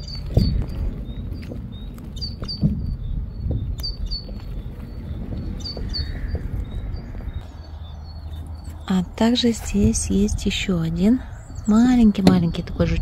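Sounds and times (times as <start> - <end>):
small bird chirping: 0.0 - 9.3
steady low rumble: 0.0 - 13.0.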